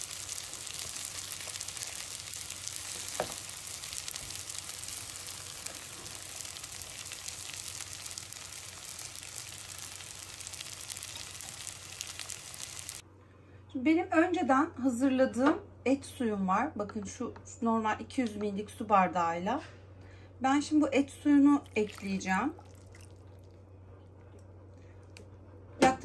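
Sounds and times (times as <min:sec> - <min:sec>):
food sizzling in a pan: 0:00.0 - 0:13.0.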